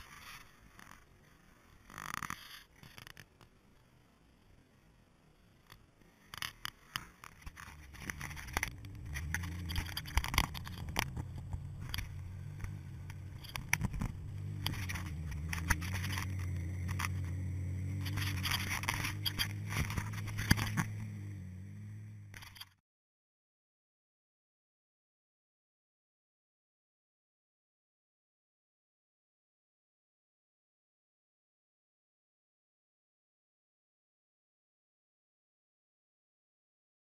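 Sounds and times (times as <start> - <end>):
tyres crackling over snow and rock: 6.2 - 21.4
vehicle engine running low: 7.4 - 22.8.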